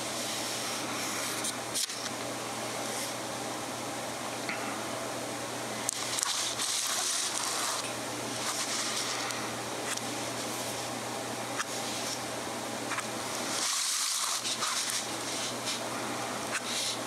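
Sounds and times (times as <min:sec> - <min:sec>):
steady low hum: 0:00.0 - 0:17.0
pen nib scratching paper: 0:06.2 - 0:07.8, 0:12.9 - 0:15.8
pad rubbing on table: 0:06.3 - 0:07.8, 0:08.4 - 0:09.2, 0:12.9 - 0:15.8.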